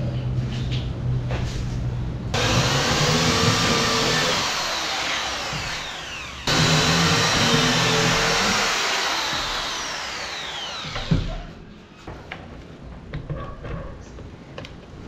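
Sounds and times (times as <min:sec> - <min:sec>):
power drill driving screws: 0:02.4 - 0:11.4.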